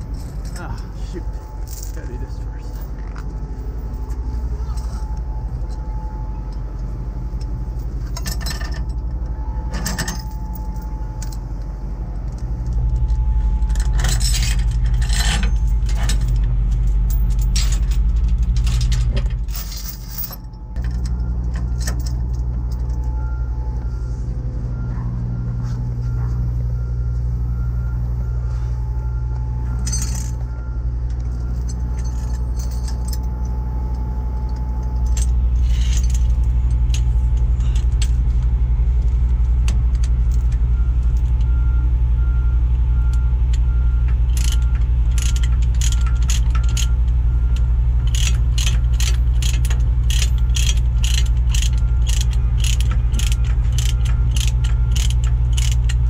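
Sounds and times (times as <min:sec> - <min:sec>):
chain links clinking: 0:00.0 - 0:23.4, 0:29.0 - 0:38.4, 0:39.9 - 0:42.4, 0:43.0 - 0:56.0
truck engine idling: 0:00.0 - 0:56.0
ratchet wrench clicking: 0:44.3 - 0:46.9, 0:48.0 - 0:56.0.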